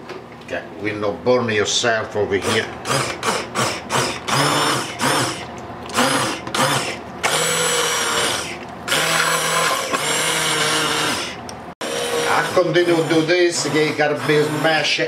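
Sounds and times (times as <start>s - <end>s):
immersion blender motor whining: 2.4s - 15.0s.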